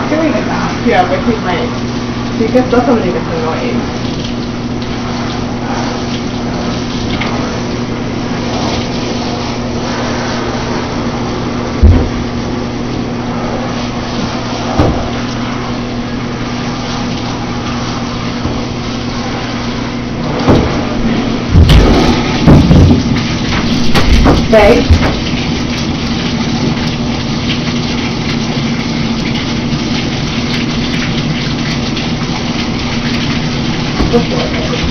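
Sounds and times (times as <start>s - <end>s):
running water rushing: 0.0s - 34.9s
low thumps: 11.7s - 12.5s, 20.2s - 25.3s.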